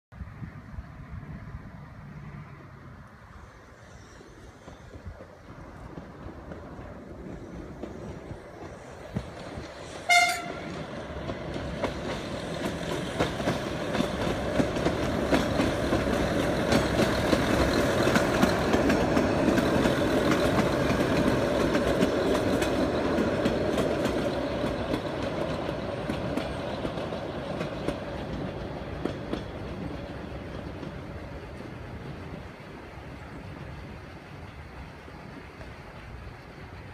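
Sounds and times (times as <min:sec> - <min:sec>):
diesel railcar passing: 0:00.1 - 0:36.9
wheels clicking over rail joints: 0:04.0 - 0:36.9
train horn blast: 0:10.0 - 0:10.8.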